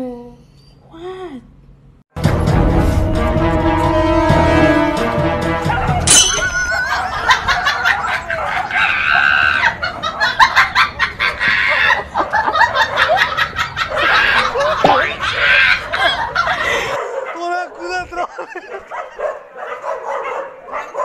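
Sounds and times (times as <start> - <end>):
people laughing: 6.5 - 17.0, 17.9 - 19.5.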